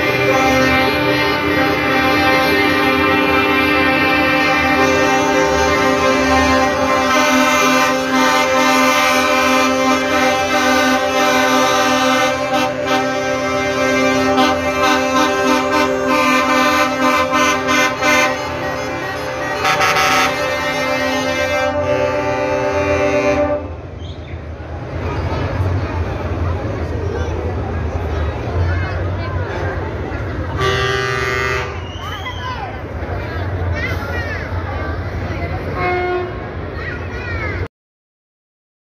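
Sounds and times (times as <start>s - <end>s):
truck air horns chord: 0.0s - 24.0s, 30.5s - 32.1s, 35.7s - 36.6s.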